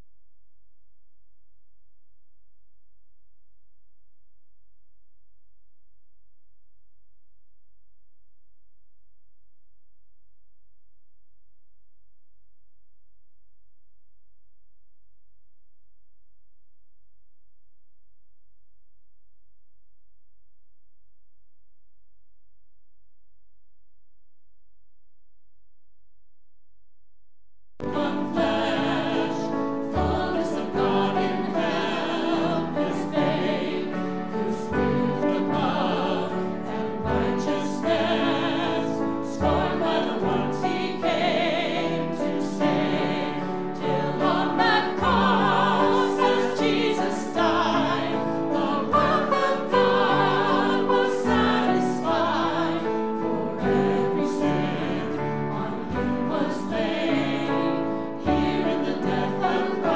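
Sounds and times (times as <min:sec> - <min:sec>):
group singing: 0:27.8 - 0:59.9.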